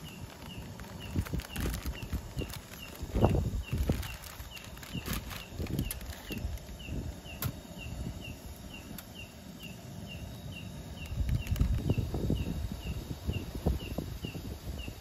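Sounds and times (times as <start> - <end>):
rustling: 0.0 - 6.7.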